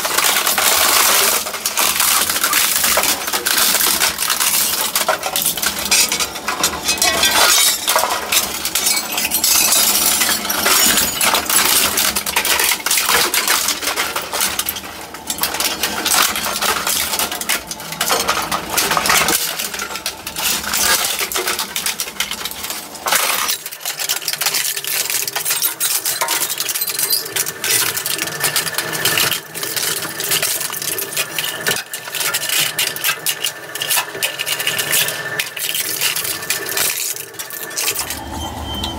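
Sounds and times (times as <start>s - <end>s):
shredder crushing plastic: 0.0s - 38.4s
metal parts clinking and rattling: 0.0s - 38.9s.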